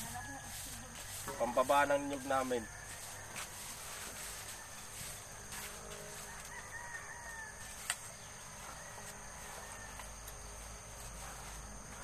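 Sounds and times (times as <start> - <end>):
rooster crowing faintly: 0.0 - 10.6.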